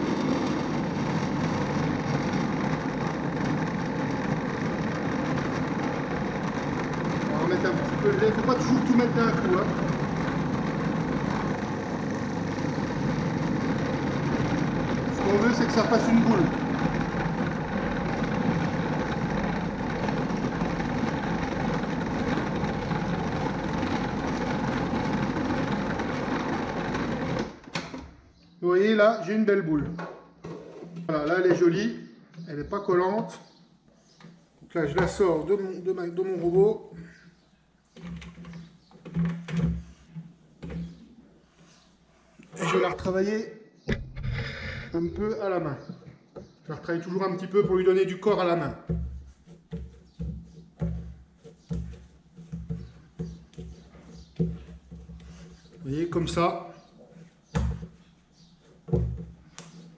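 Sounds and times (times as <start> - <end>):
food processor motor running: 0.0 - 28.0, 47.0 - 56.9.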